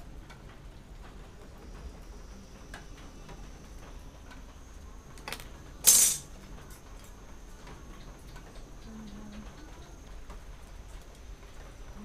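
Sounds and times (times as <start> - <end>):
metal ruler clattering on table: 5.3 - 6.3.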